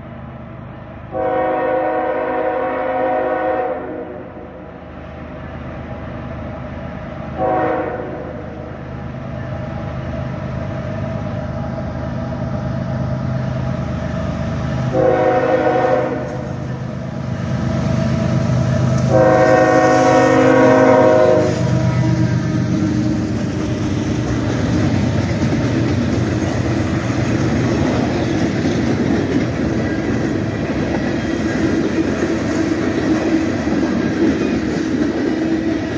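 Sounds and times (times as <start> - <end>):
locomotive and train rumble: 0.0 - 35.9
train air horn blasts: 1.1 - 4.6, 7.4 - 8.7, 14.9 - 16.6, 19.0 - 23.0.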